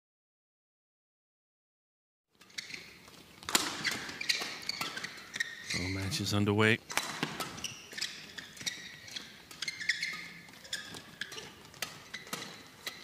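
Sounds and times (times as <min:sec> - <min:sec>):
shoes squeaking on court: 0:02.3 - 0:13.0
rackets hitting shuttlecock: 0:03.4 - 0:05.5, 0:06.8 - 0:13.0.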